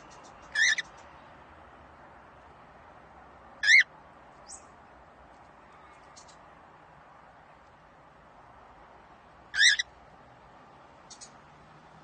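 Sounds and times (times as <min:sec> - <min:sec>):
faint bird chirp: 0:00.0 - 0:01.3, 0:03.6 - 0:04.8, 0:05.6 - 0:06.5, 0:11.0 - 0:11.5.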